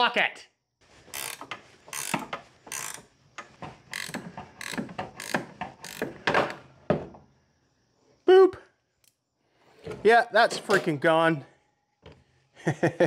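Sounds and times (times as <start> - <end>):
ratcheting wrench clicking: 1.1 - 3.1, 3.9 - 6.2.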